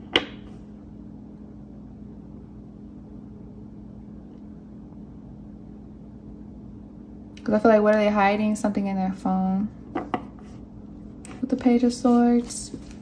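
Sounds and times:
low background hum: 0.0 - 13.0.

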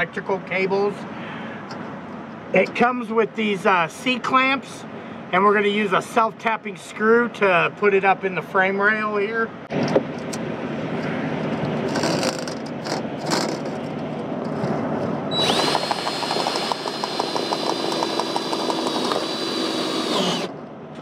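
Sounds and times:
power drill motor whine: 15.3 - 20.6.

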